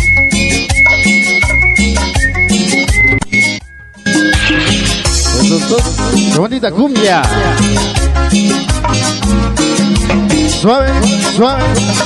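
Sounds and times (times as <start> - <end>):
cumbia music: 0.0 - 12.0
held single tone: 0.8 - 5.4.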